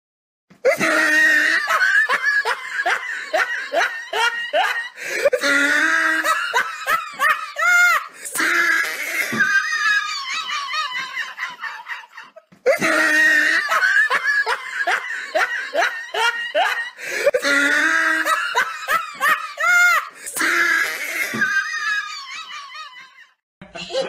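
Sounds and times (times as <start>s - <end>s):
recorded laughter: 0.6s - 24.0s.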